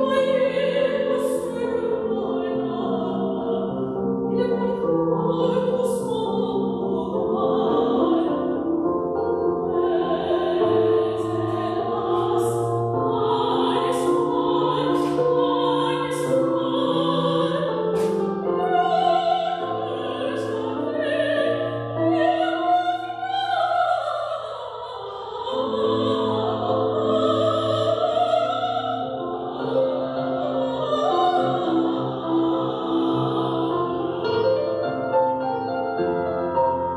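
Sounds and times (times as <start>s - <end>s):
woman singing operatically: 0.0s - 8.6s, 9.6s - 34.5s.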